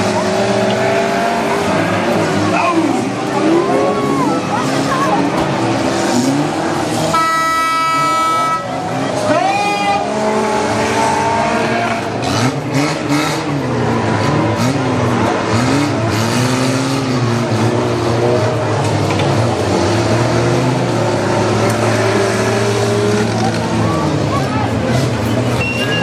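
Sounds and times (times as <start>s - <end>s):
racing car engines revving: 0.0s - 26.0s.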